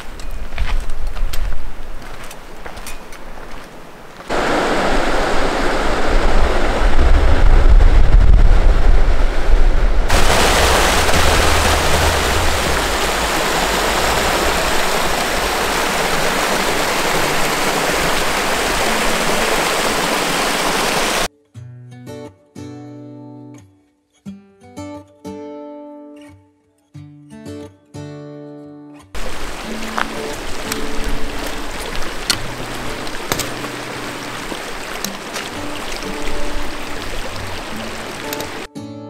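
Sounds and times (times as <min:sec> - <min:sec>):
stream rushing over rocks: 0:03.4 - 0:21.3, 0:29.2 - 0:38.7
low rumble: 0:06.0 - 0:15.7.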